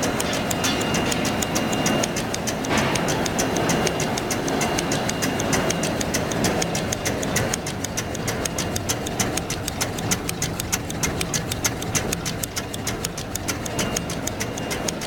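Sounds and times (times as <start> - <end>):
folding machine clattering and clicking: 2.7 - 4.4.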